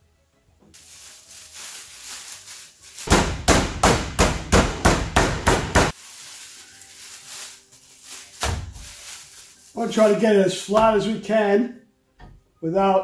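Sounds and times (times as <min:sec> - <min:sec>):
meat mallet pounding on board: 0:03.1 - 0:05.9.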